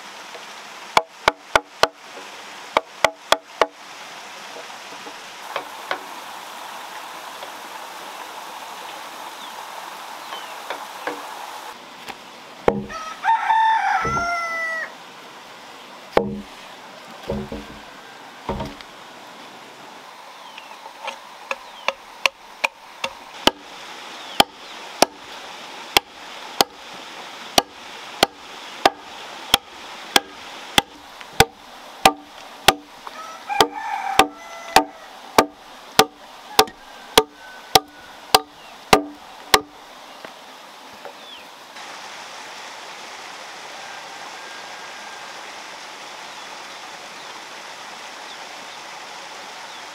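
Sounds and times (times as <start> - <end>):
axe chopping into log: 12.6 - 13.0, 14.0 - 14.3, 16.2 - 16.5, 17.3 - 17.8, 18.5 - 18.8, 22.2 - 23.7, 24.4 - 25.2, 26.0 - 26.8, 27.6 - 32.9, 33.6 - 39.7
dull knocks: 12.6 - 13.0, 14.0 - 14.3, 16.2 - 16.6, 17.2 - 17.9, 18.5 - 18.8, 30.2 - 32.9, 33.6 - 39.7
rooster crowing: 12.7 - 15.0, 17.7 - 18.6, 33.0 - 35.2, 36.4 - 38.6, 43.6 - 45.6.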